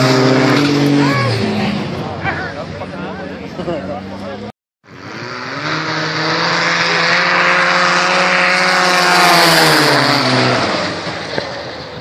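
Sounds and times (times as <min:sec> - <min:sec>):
snowmobile engines racing past: 0:00.0 - 0:04.3, 0:04.9 - 0:12.0.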